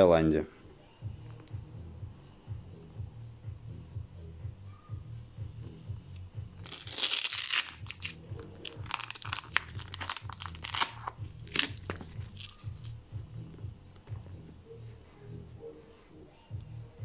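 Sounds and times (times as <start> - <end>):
music with bass beat: 0.9 - 17.0
crinkling and crunching handling: 6.6 - 12.9.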